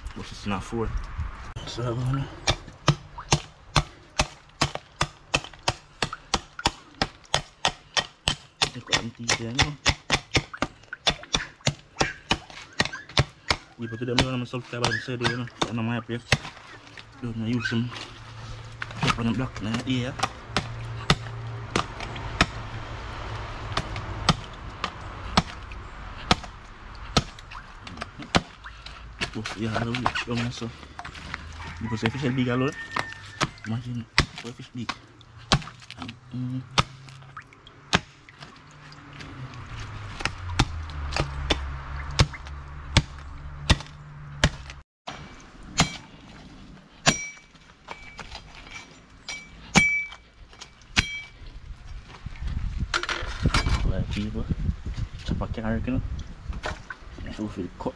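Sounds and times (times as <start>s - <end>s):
blade chopping fish on block: 26.2s - 27.4s
metallic clink: 47.0s - 51.4s.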